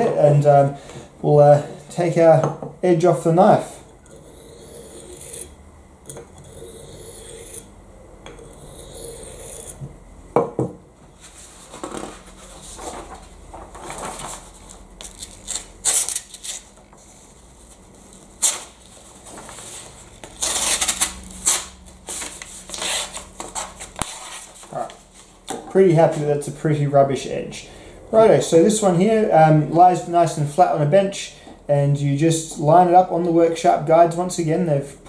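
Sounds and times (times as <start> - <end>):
knife scraping on abrasive block: 4.1 - 7.7, 8.4 - 9.8
paper rustling and crumpling: 11.2 - 16.7.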